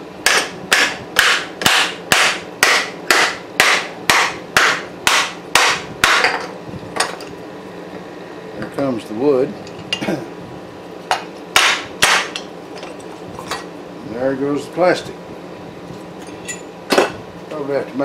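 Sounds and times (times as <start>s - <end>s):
hammer striking metal mold: 0.2s - 6.5s, 11.6s - 12.4s.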